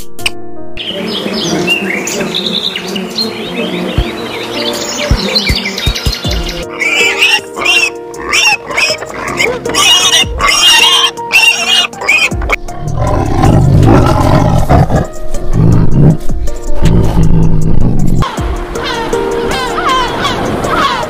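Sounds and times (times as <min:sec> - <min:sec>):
background music: 0:00.0 - 0:21.0
pigs squealing: 0:06.6 - 0:16.2
tiger growling roar: 0:08.6 - 0:18.2.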